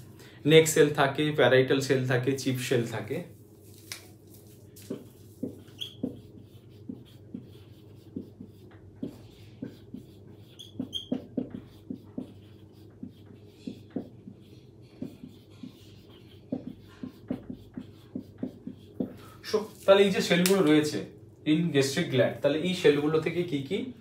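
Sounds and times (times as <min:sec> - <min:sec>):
steady low hum: 0:00.0 - 0:24.0
marker writing on whiteboard: 0:04.4 - 0:20.6
marker squeaks: 0:04.9 - 0:14.1.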